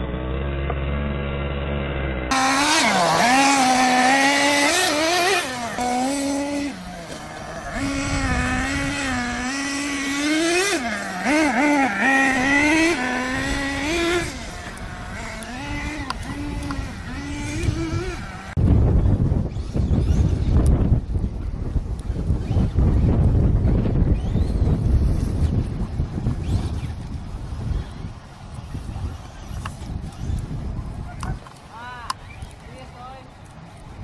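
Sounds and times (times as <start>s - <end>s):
electric motor whining: 0.0s - 18.6s
tires scrabbling on loose dirt: 0.0s - 34.0s.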